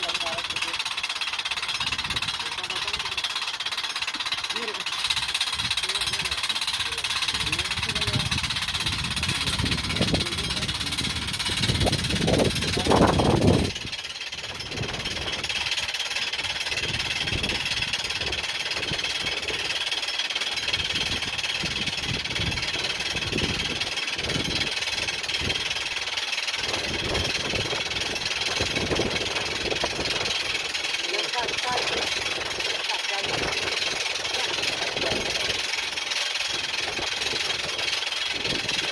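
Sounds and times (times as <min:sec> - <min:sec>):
machine running with high whine: 0:00.0 - 0:38.9
wind buffeting microphone: 0:05.1 - 0:15.7, 0:16.5 - 0:19.6, 0:20.7 - 0:25.9, 0:26.6 - 0:30.6, 0:36.5 - 0:38.9.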